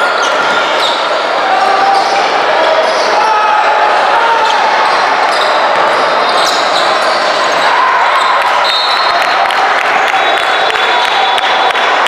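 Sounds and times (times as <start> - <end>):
crowd chatter: 0.0 - 12.0.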